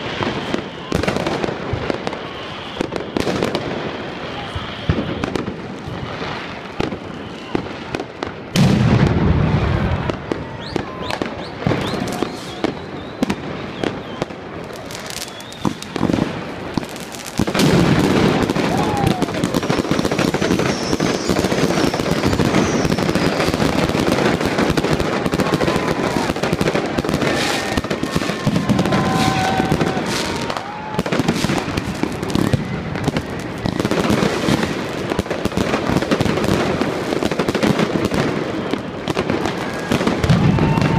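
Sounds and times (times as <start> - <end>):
firecrackers bangs and crackling: 0.0 - 40.9
loud firework boom: 8.5 - 14.0.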